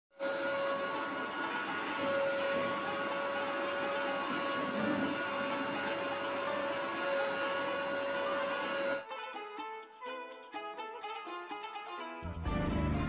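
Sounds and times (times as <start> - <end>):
vacuum cleaner motor whine: 0.2 - 9.0.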